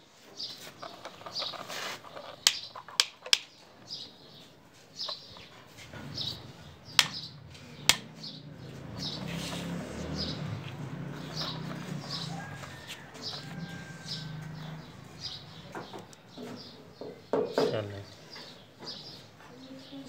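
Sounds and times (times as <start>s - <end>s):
small birds chirping: 0.2s - 20.0s
plastic toy vehicles clacking: 0.6s - 4.0s
pigeons cooing: 5.8s - 15.9s.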